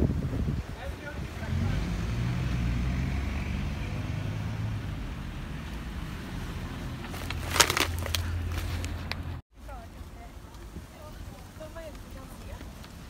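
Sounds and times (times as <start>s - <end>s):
car driving past: 1.4s - 7.0s.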